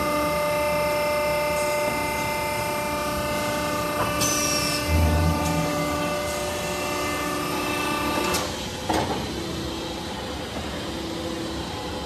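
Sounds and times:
machinery humming: 3.1s - 8.7s
machine whining tones: 4.4s - 8.5s.

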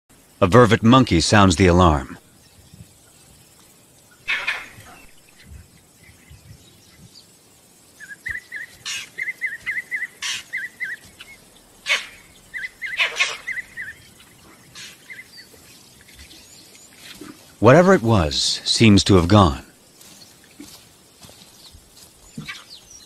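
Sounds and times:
monkey alarm chirps: 4.1s - 6.2s, 8.0s - 15.5s
monkey sharp calls: 4.2s - 5.6s, 8.0s - 15.4s.

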